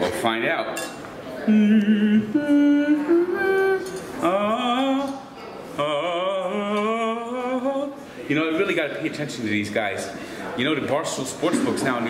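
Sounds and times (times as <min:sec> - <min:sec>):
man singing: 0:01.4 - 0:08.0.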